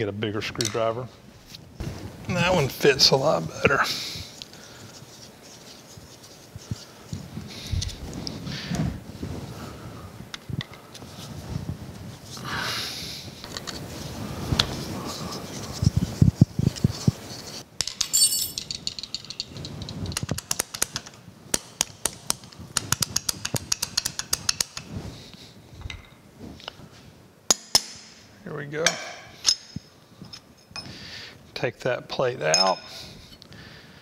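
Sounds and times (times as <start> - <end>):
metallic screw clicks and clinks: 17.8 - 20.7.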